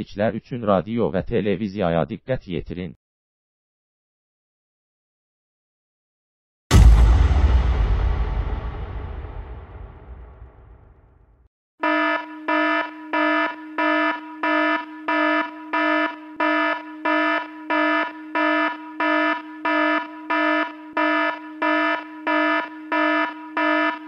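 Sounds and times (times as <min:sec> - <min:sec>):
pulsing buzzy alarm tone: 0:11.8 - 0:24.0.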